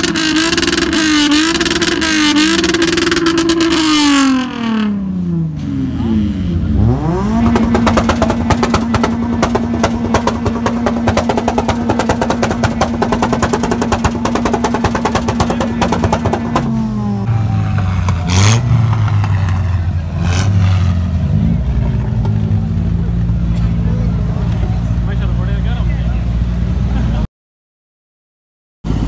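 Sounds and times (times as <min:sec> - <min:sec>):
sharp exhaust pops: 0:00.0 - 0:04.2, 0:07.2 - 0:16.9
car engine revving: 0:00.0 - 0:27.2.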